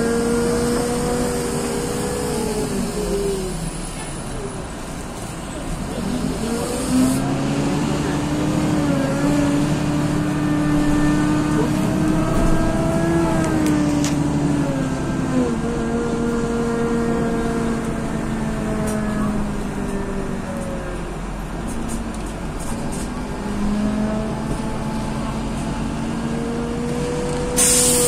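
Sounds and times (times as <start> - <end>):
bus engine accelerating: 0.0 - 28.0
short hiss: 27.6 - 28.0.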